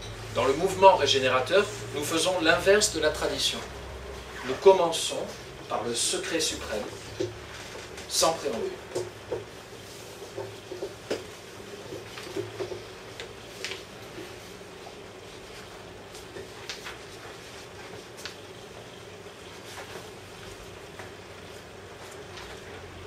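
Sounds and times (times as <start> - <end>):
steady hum: 0.0 - 23.0
faint clicks and knocks: 7.1 - 13.8.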